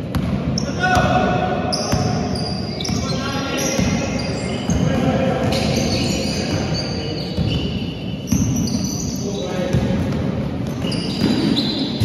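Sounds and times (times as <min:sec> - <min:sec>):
basketball bouncing: 0:00.0 - 0:01.1, 0:09.7 - 0:11.6.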